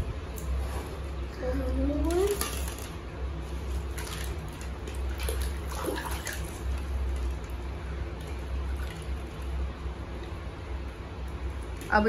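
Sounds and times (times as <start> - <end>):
steady low hum: 0.0 - 12.0
water splashing and sloshing: 2.0 - 12.0.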